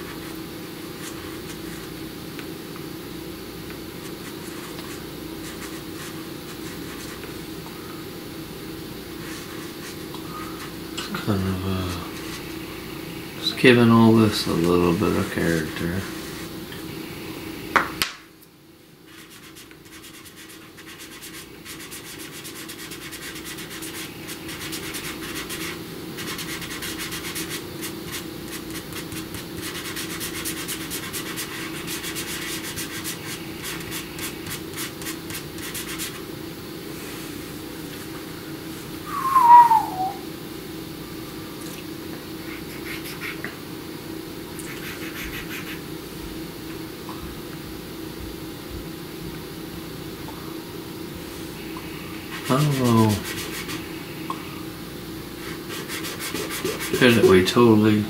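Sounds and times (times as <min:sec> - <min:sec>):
pastel scratching on paper: 0:01.0 - 0:01.9, 0:04.0 - 0:07.3, 0:09.2 - 0:10.7, 0:19.1 - 0:36.2, 0:42.4 - 0:43.5, 0:44.6 - 0:45.8, 0:52.3 - 0:53.9, 0:55.4 - 0:57.5
fingertip rubbing paper: 0:19.1 - 0:36.2, 0:42.5 - 0:43.4, 0:44.6 - 0:45.8, 0:52.3 - 0:53.9, 0:55.4 - 0:57.4
short falling squeak: 0:39.1 - 0:40.2.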